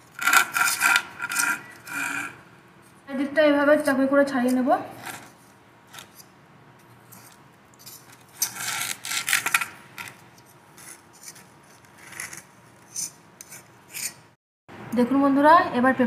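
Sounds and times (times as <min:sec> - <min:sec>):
knife scraping metal cake tin: 0:00.0 - 0:02.4, 0:07.1 - 0:10.2, 0:10.8 - 0:14.3.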